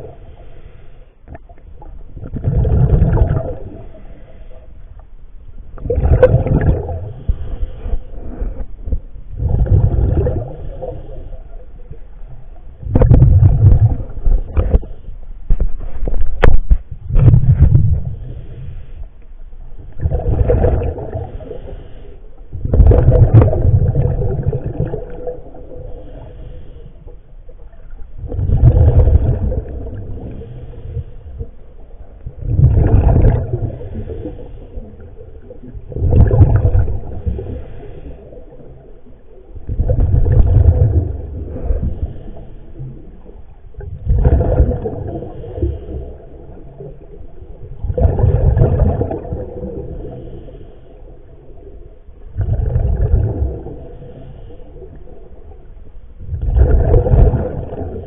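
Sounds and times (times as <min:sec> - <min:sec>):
diver inhaling: 0:00.2 - 0:01.2, 0:18.1 - 0:19.2, 0:21.1 - 0:22.4, 0:25.7 - 0:27.3, 0:30.0 - 0:31.6, 0:33.6 - 0:35.2, 0:37.1 - 0:39.1, 0:41.4 - 0:43.2, 0:49.8 - 0:51.5, 0:53.7 - 0:55.4
regulator air bubbling: 0:01.2 - 0:04.4, 0:05.7 - 0:19.2, 0:19.8 - 0:58.0.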